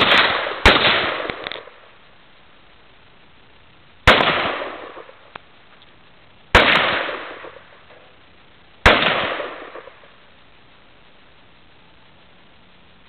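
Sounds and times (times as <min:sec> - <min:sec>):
rifle shots: 0:00.0 - 0:01.8, 0:04.0 - 0:05.2, 0:06.5 - 0:07.7, 0:08.8 - 0:10.1.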